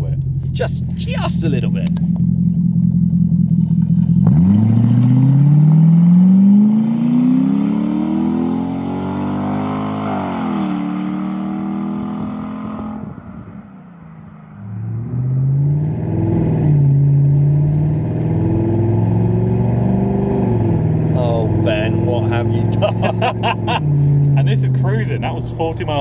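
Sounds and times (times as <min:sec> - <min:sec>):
car engine accelerating: 0:00.0 - 0:26.0
car engine heard from inside cabin: 0:00.0 - 0:26.0.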